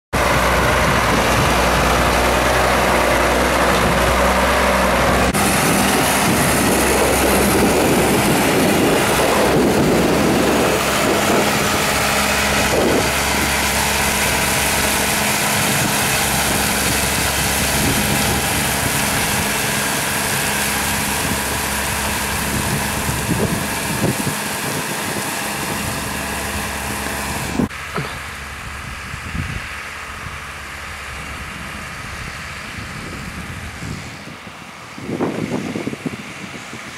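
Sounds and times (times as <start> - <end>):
tractor diesel engine running: 0.1 - 36.9.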